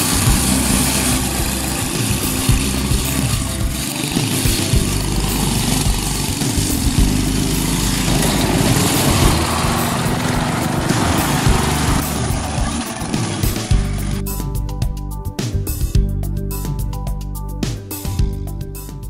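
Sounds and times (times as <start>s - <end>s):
go-kart engine running: 0.0s - 14.2s.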